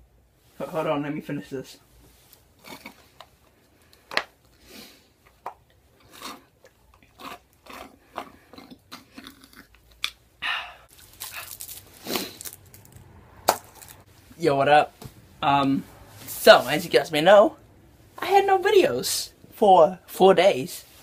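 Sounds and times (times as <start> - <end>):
person chewing crunchy food: 2.6 - 14.1.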